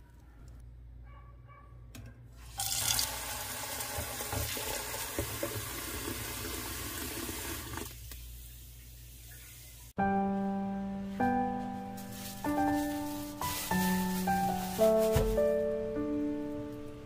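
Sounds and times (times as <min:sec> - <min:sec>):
tap water running into saucepan: 0:02.5 - 0:08.2.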